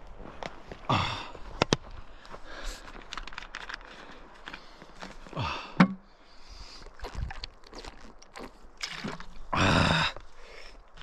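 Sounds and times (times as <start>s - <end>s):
short breath: 2.3s - 3.1s
plastic bottle crinkling: 7.0s - 9.4s.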